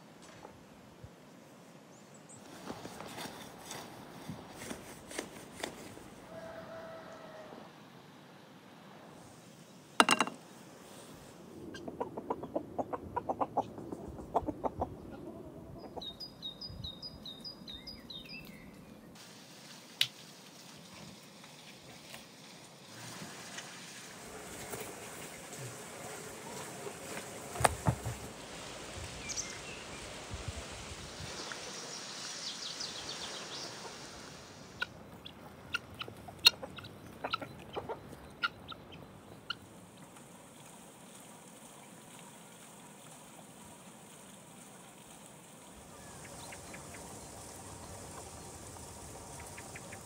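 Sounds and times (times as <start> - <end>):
hen pecking taps: 10.0 - 10.4
knife knocking on wooden board: 10.0 - 10.4
hen clucking: 11.7 - 16.3, 33.3 - 40.2.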